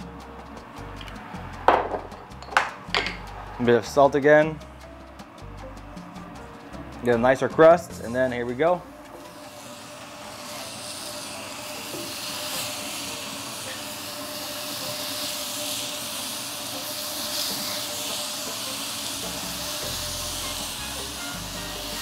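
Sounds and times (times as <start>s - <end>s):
fruit sizzling on grill pan: 4.8s - 22.0s.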